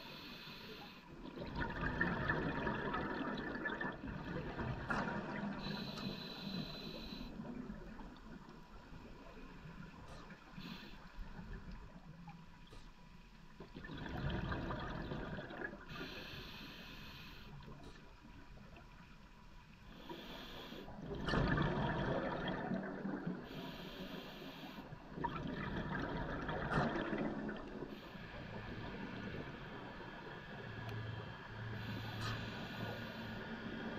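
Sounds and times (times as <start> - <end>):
exhaled bubbles rushing: 1.2 - 5.7, 13.7 - 15.9, 21.0 - 23.4, 25.1 - 27.9
diver breathing through regulator: 5.5 - 7.5, 15.9 - 17.6, 23.4 - 24.9, 31.7 - 33.9.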